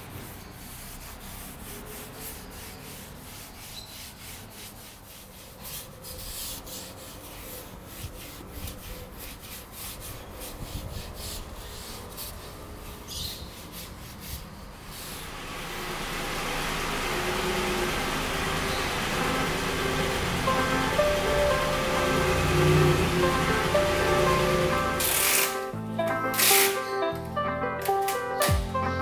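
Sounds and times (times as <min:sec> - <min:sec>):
brush scrubbing leather seat: 0:00.0 - 0:16.7.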